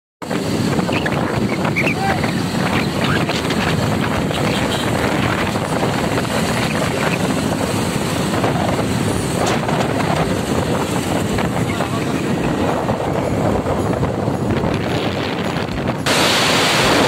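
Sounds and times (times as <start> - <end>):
wind rushing over microphone: 0.2 - 17.0
motorcycle engines: 0.3 - 17.0.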